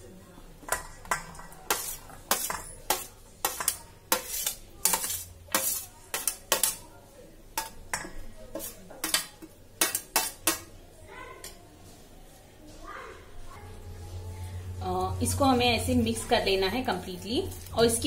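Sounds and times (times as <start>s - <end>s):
spoon scraping steel plate: 1.1s - 6.8s, 8.5s - 10.7s.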